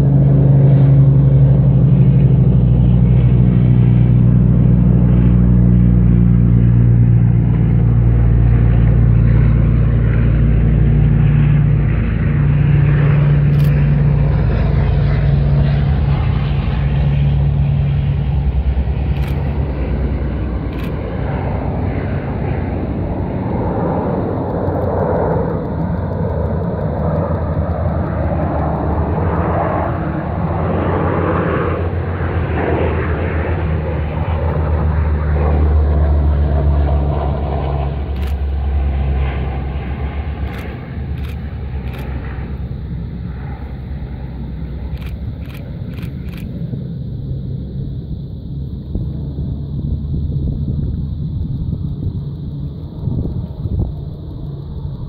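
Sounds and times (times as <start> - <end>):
propeller aircraft engine drone: 0.0 - 55.0
sharp clicks: 13.5 - 13.9, 19.0 - 19.8, 20.6 - 21.4, 24.1 - 30.6, 38.0 - 38.9, 39.9 - 47.0, 51.0 - 55.0.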